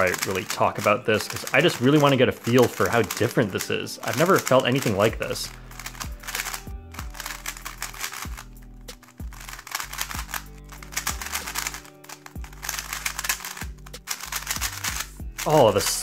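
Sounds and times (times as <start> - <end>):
speed cube clicking: 0.0 - 16.0
background music with bass: 4.8 - 16.0.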